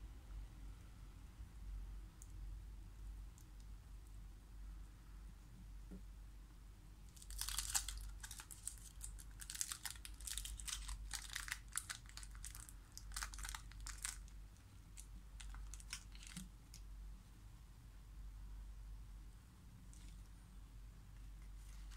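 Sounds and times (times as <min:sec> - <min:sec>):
foil wrapper crinkling: 0:07.2 - 0:14.4, 0:15.0 - 0:16.5.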